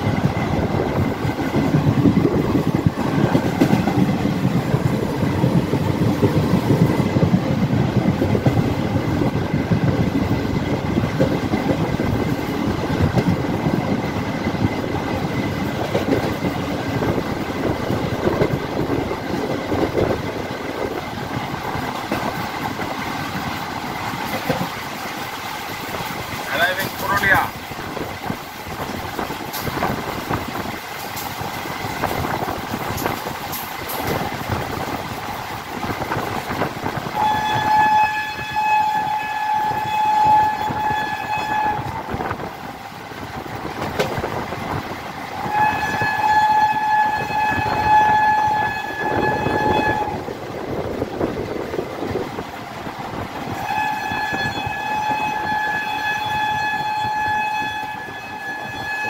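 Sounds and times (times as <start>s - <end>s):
train wheels clattering on rails: 0.0s - 59.0s
electric locomotive horn blasts: 37.0s - 42.4s, 45.4s - 50.2s, 53.6s - 59.0s.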